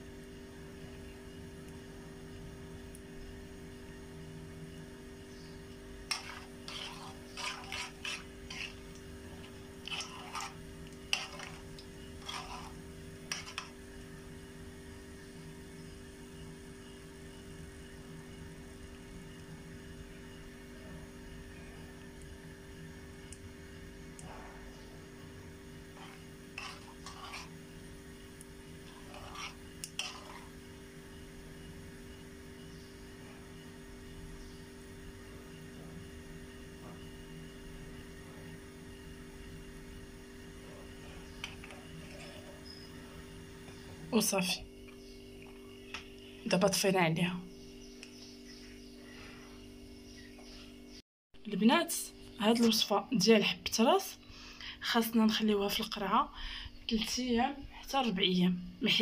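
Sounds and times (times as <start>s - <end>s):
steady low hum: 0.0s - 58.9s
hot oil foaming: 6.0s - 13.8s, 25.8s - 30.9s
metal spoon scraping frying pan: 6.0s - 13.8s, 25.9s - 27.8s, 28.8s - 30.6s, 41.1s - 42.8s.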